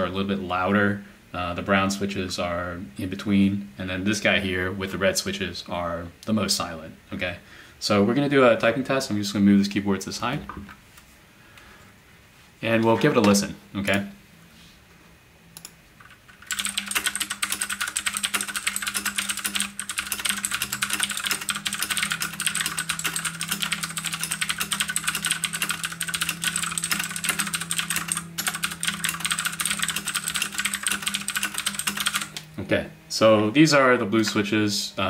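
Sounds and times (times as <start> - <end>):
fast mechanical keyboard typing: 16.0 - 32.4.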